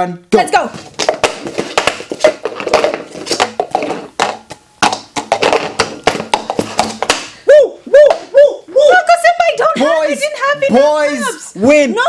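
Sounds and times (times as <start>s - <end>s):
plastic cups clacking on wood: 0.8s - 7.3s.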